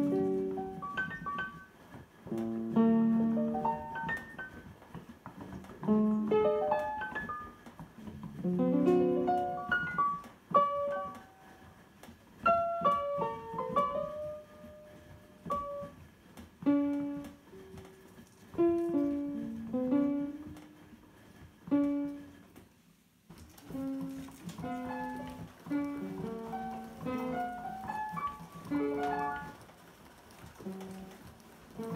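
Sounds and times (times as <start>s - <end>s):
synthesizer piano notes and chords: 0.0s - 11.6s, 23.4s - 31.9s.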